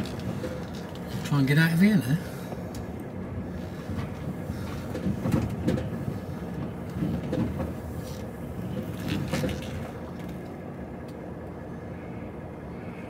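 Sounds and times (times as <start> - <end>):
clunks and rattles: 0.0 - 1.5, 2.4 - 11.3
diesel engine running low: 0.0 - 13.0.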